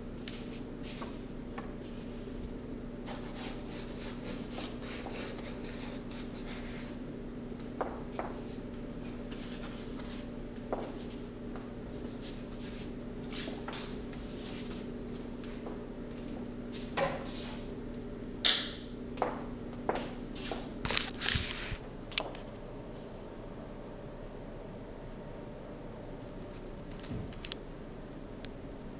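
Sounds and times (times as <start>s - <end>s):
paintbrush strokes on cardboard: 3.1s - 7.0s, 9.3s - 10.3s, 11.9s - 14.9s.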